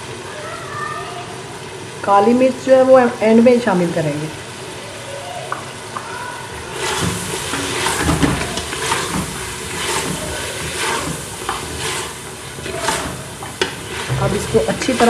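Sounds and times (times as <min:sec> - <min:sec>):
meat and onions sizzling: 0:00.0 - 0:15.0
wooden spatula scraping pot: 0:06.6 - 0:15.0.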